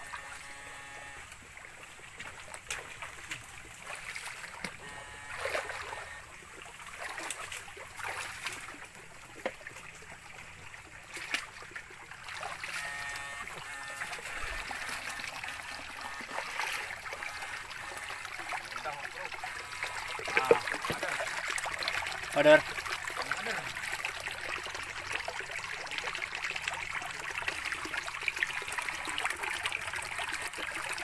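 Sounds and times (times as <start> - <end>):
electric buzz: 0.0 - 1.4, 4.8 - 6.3, 12.6 - 18.6
stream trickling over stones: 0.0 - 31.0.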